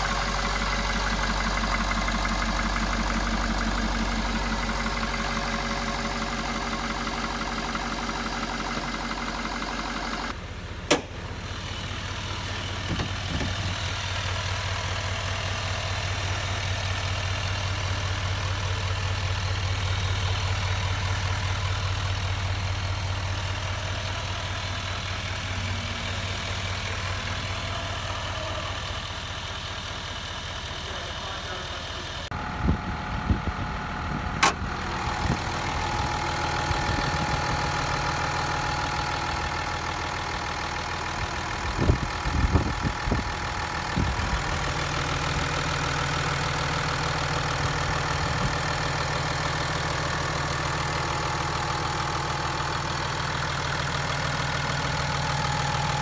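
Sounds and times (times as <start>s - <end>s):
diesel truck engines idling: 0.0s - 56.0s
hood latch click: 10.9s - 11.2s, 34.4s - 34.6s.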